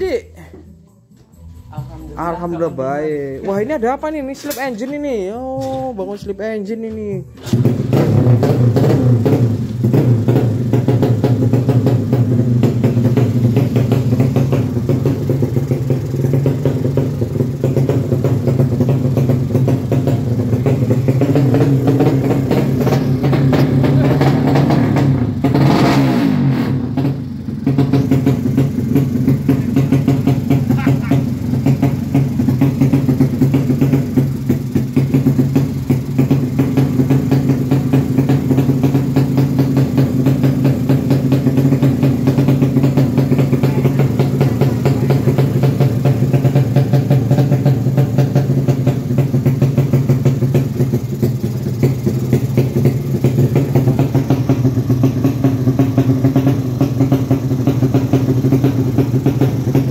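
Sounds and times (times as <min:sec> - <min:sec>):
motorcycle engine idling: 0:00.0 - 0:59.9.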